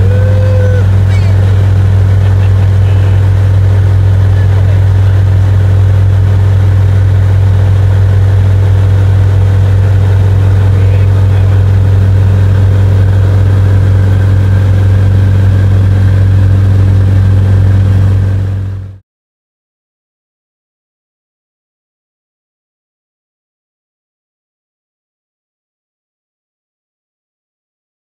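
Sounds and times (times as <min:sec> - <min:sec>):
propeller plane engine drone: 0:00.0 - 0:19.0.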